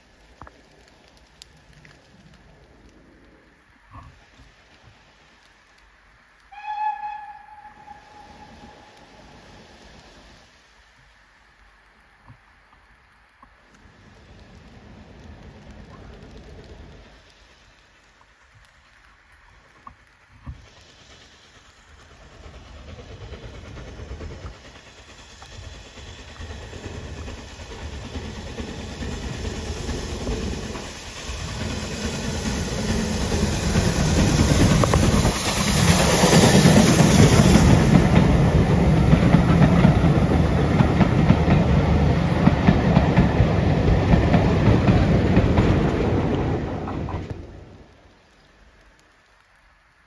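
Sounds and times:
steam locomotive passing: 0.0s - 11.5s, 13.7s - 49.8s
train coaches rattling on track: 20.6s - 47.7s.

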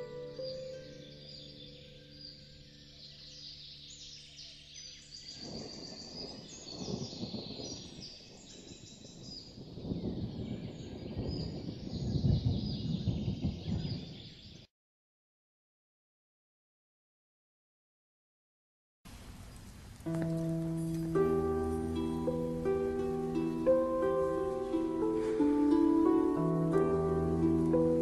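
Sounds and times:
held ambient music tones: 0.0s - 6.3s, 19.1s - 28.0s
birds chirping: 0.0s - 14.7s, 19.1s - 28.0s.

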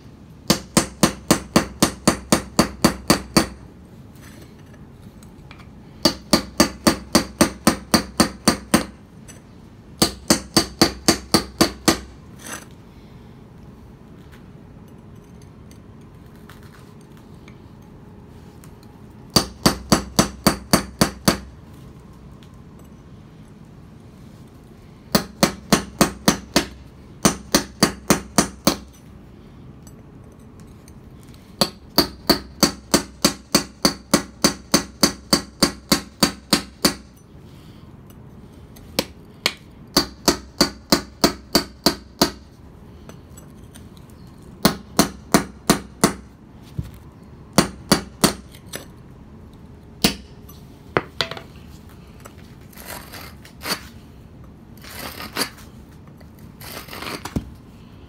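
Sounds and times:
hammer striking chisel on stone: 0.5s - 3.6s.

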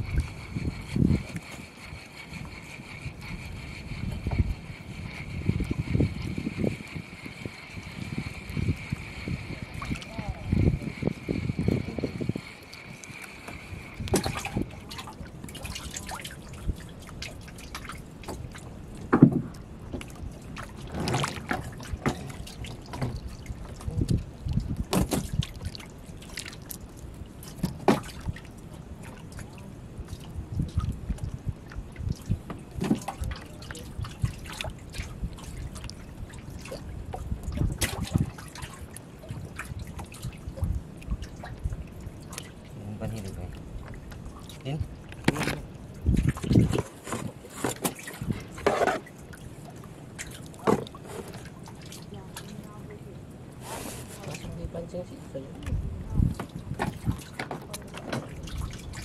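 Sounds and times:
water splashing and dripping: 0.0s - 53.3s, 53.9s - 59.0s
knocks on wooden boat: 19.0s - 19.5s.

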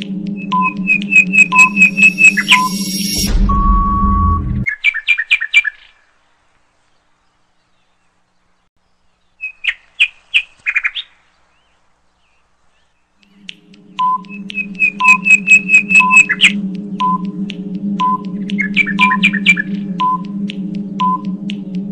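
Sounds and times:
countdown timer beeps: 0.0s - 4.6s, 13.4s - 21.6s
steady low hum: 0.0s - 4.6s, 13.3s - 21.9s
bird-like chirps: 0.4s - 3.3s, 9.0s - 16.6s, 18.0s - 20.2s.

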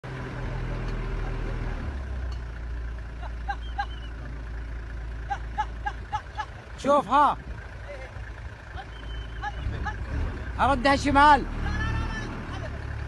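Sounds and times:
vehicle engine running: 0.0s - 13.0s
short high chirping calls: 8.8s - 9.6s.

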